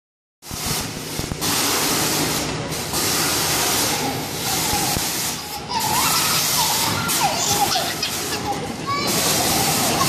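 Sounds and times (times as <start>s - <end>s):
amusement ride hissing: 0.5s - 10.0s
low mechanical hum: 0.5s - 10.0s.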